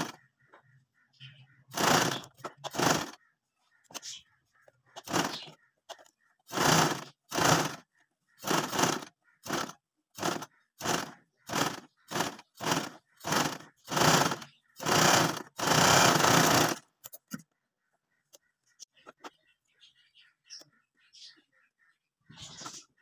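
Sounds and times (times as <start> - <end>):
sewing machine stitching: 1.7 - 3.2, 5.0 - 5.5, 6.5 - 16.9.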